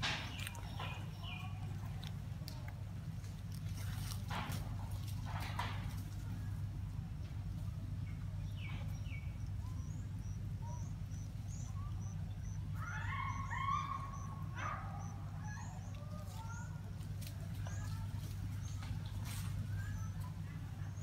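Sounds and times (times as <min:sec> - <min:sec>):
steady low hum: 0:00.0 - 0:21.0
high squealing animal calls: 0:09.8 - 0:16.7.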